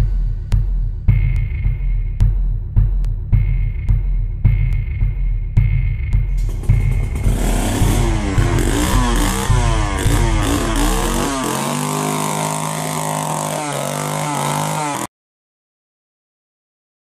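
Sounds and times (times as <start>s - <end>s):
chainsaw engine revving: 6.4s - 15.1s.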